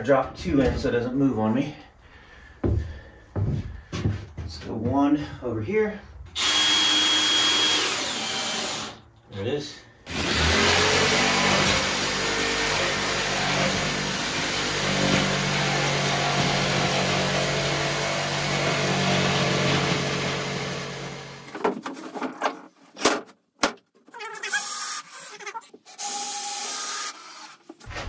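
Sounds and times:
power tool cutting board: 6.4s - 9.0s, 10.1s - 21.5s.

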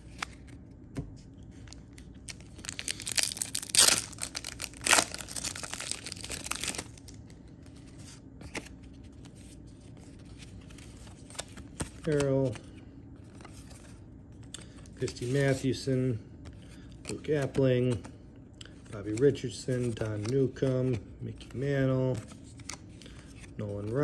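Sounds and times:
foil wrapper crinkling: 2.2s - 7.2s
foil wrapper ripping: 2.3s - 7.0s.

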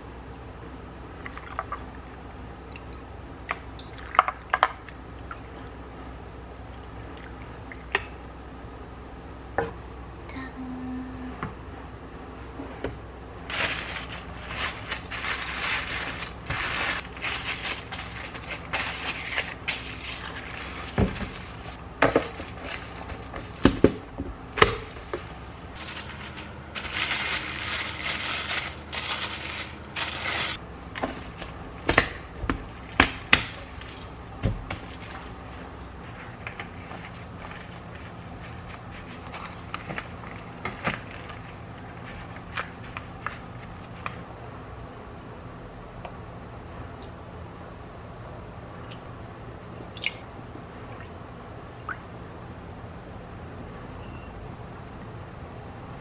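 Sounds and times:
steady low hum: 0.0s - 56.0s
noisy rustling or hissing: 24.8s - 30.6s.

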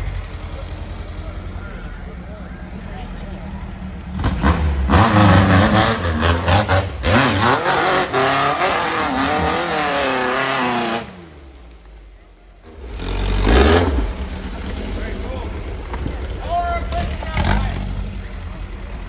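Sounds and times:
buggy engine revving: 0.0s - 11.6s, 12.6s - 19.0s.

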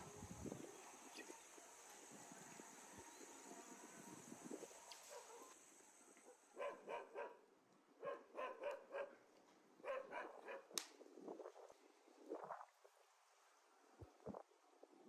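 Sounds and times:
dog barking faintly: 5.0s - 5.6s, 6.2s - 10.8s.

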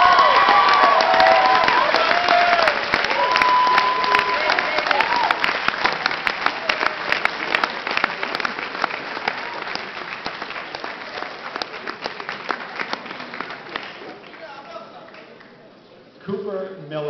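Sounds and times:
audience applauding: 0.0s - 15.5s.

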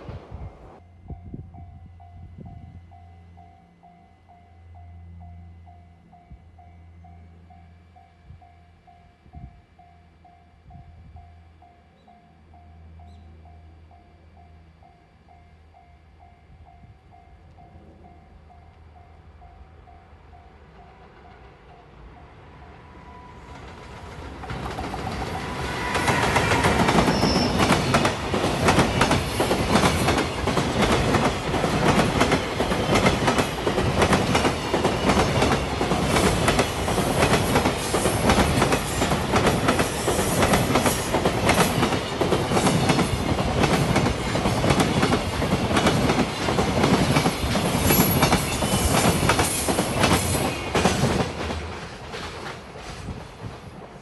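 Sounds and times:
train wheels clattering on rails: 23.5s - 54.0s.

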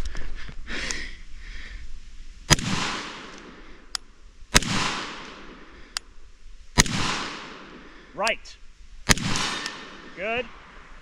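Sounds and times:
pistol shots echoing: 2.5s - 3.5s, 4.5s - 5.6s, 6.8s - 7.8s, 9.1s - 10.2s.

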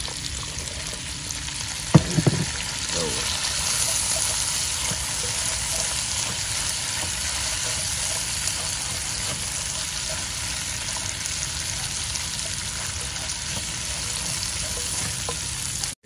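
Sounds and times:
food sizzling in a wok: 0.0s - 16.0s
spatula stirring in a wok: 3.2s - 16.0s.

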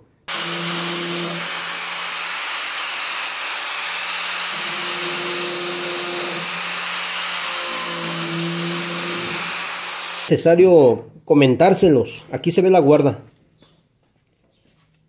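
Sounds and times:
angle grinder grinding wood: 0.3s - 10.3s.

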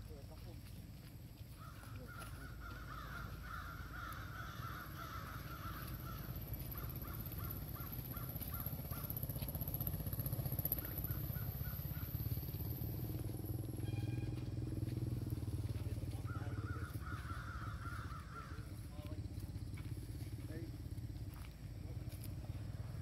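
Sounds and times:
short caw-like calls: 1.5s - 9.3s, 13.9s - 19.0s
rough drawn-out animal call: 1.6s - 18.9s.

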